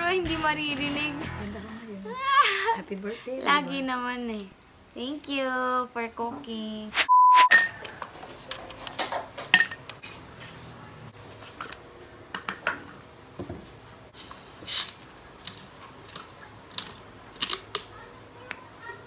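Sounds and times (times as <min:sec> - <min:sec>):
plastic bottle hissing rush: 0:14.2 - 0:15.0.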